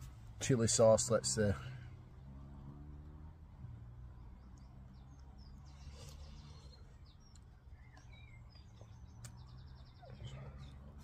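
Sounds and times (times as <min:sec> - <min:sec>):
birds chirping and whistling: 0:04.2 - 0:11.0.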